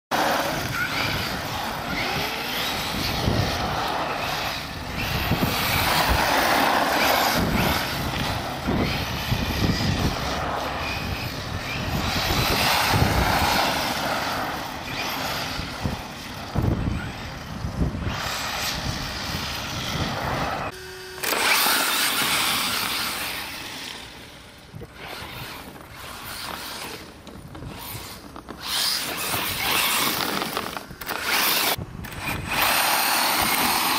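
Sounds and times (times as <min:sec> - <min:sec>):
electric motor whining: 0:00.1 - 0:33.9
tyres scrabbling over loose ground: 0:24.8 - 0:33.9.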